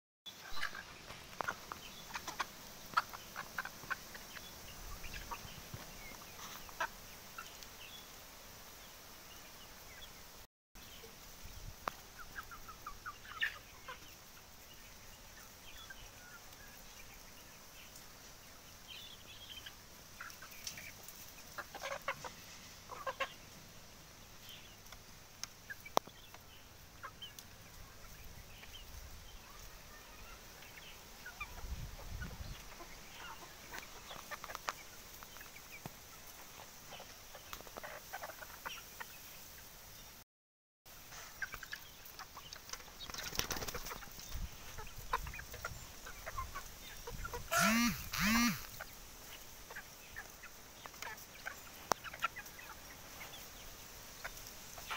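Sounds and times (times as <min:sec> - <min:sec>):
chickens clucking: 0:00.3 - 0:08.2, 0:11.8 - 0:40.1, 0:41.0 - 0:54.9
loud rising chicken call: 0:47.4 - 0:48.9.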